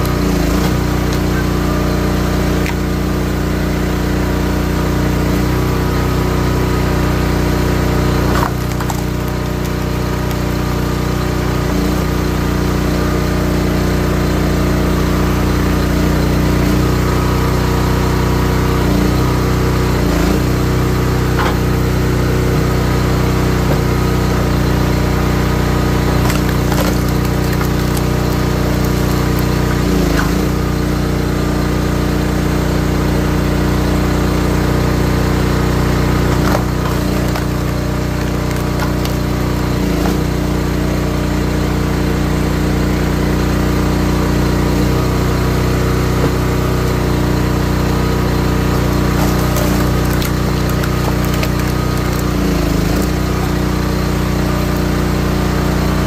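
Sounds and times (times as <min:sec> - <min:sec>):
wood splitting cracks: 0:00.0 - 0:01.5, 0:02.4 - 0:03.0, 0:08.0 - 0:12.2, 0:25.5 - 0:30.6, 0:36.0 - 0:40.4, 0:48.6 - 0:54.9
log splitter engine running: 0:00.0 - 0:56.0.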